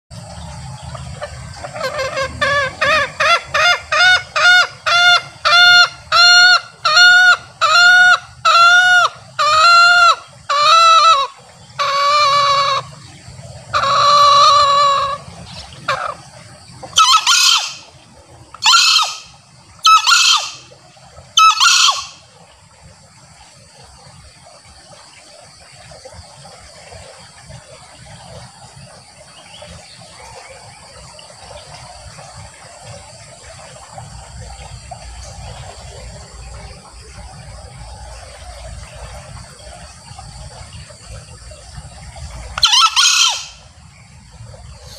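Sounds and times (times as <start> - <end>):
junglefowl cackling calls: 0.8 - 18.0, 18.6 - 20.8, 21.4 - 22.3, 42.5 - 43.7.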